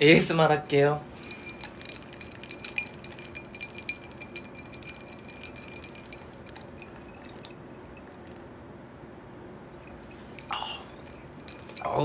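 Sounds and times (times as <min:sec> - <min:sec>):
clinking in a ceramic bowl: 0:01.1 - 0:08.4, 0:09.8 - 0:12.0.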